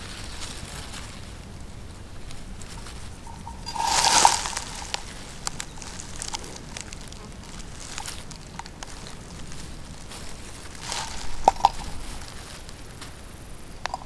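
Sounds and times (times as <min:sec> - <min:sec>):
swish of brushed foliage: 0:02.2 - 0:08.3, 0:08.9 - 0:14.0
hand rustling through grass: 0:02.2 - 0:13.3.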